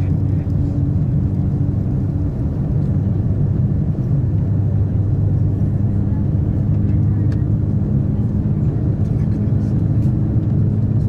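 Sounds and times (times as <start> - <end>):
train cabin rumble and hum: 0.0 - 11.0.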